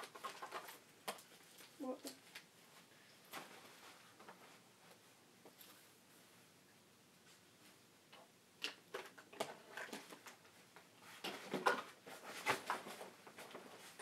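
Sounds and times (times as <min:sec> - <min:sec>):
items clicking and rustling in a bag: 0:00.0 - 0:02.5.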